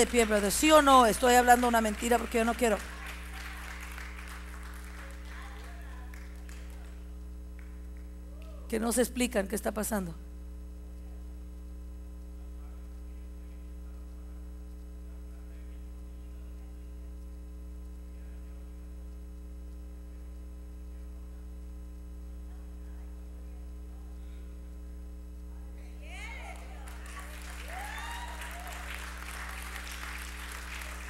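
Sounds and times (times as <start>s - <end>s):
low electrical mains hum: 0.0s - 31.0s.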